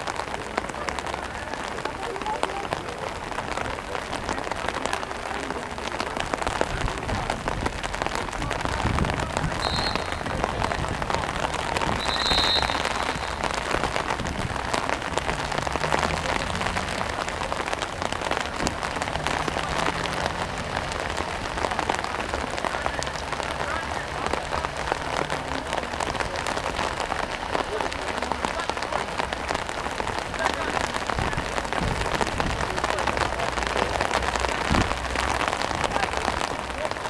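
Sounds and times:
rain patter: 0.0s - 37.0s
referee's whistle blasts: 9.6s - 10.3s, 11.9s - 13.7s.

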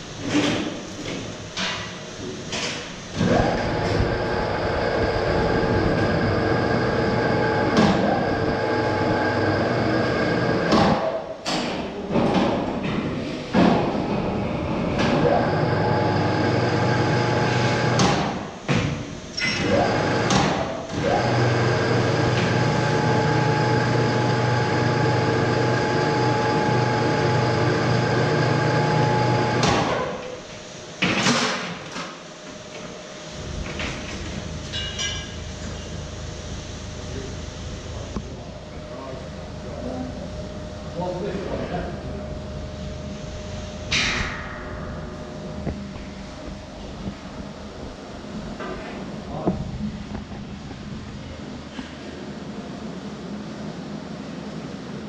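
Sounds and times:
electric crane motor whining: 3.2s - 10.7s, 14.2s - 18.0s, 20.9s - 29.7s.

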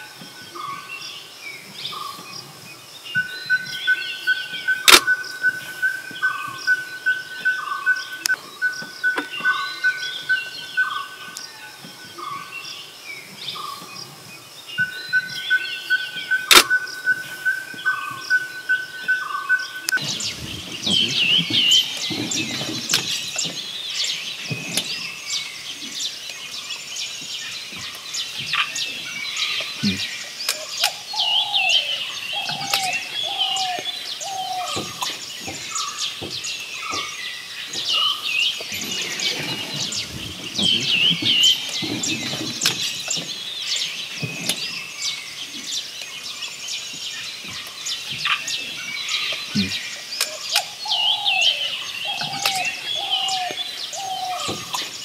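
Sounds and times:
chorus of high bird chirps: 0.0s - 55.0s
lower falling bird calls: 0.0s - 55.0s
steady whistle: 3.2s - 11.2s
sharp click: 4.9s - 5.2s, 16.5s - 16.8s.

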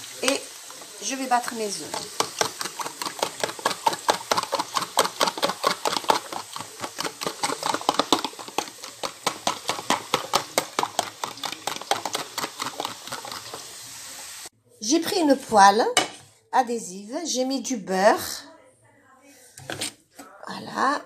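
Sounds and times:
fork whisking eggs in plastic tub: 0.2s - 13.8s, 19.5s - 20.3s.

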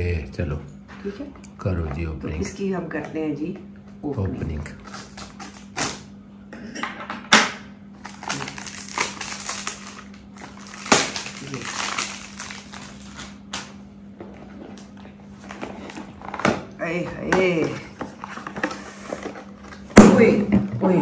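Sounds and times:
packaging crinkling and tearing: 4.8s - 6.1s, 8.0s - 13.7s.

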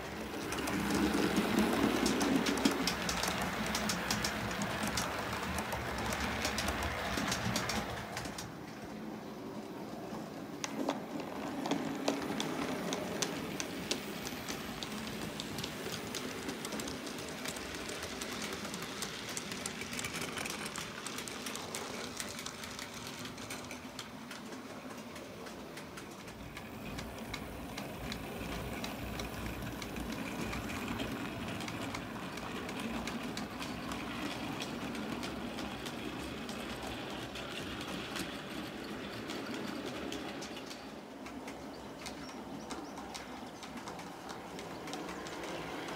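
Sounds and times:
model train running on track: 0.0s - 45.9s
wheels clicking over rail joints: 0.0s - 45.9s.

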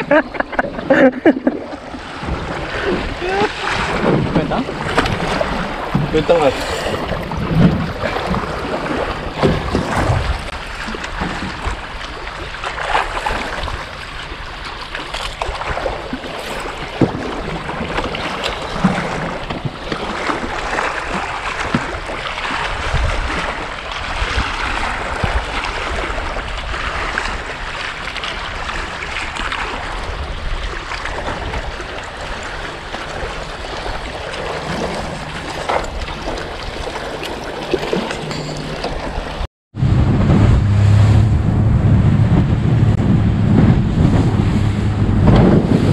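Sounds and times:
wind on microphone: 0.0s - 14.6s, 15.4s - 37.0s, 37.6s - 45.9s
water slapping metal boat hull: 0.0s - 45.9s.

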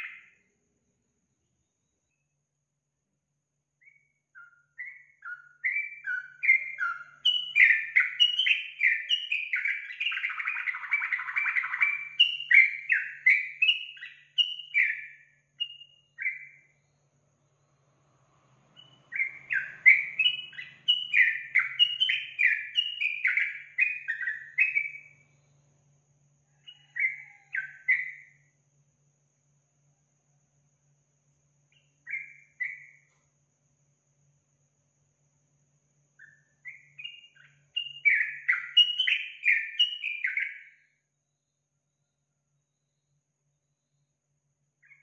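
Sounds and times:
bird singing bubbly chirps: 0.0s - 0.4s, 3.8s - 16.8s, 18.8s - 25.2s, 36.2s - 40.7s.

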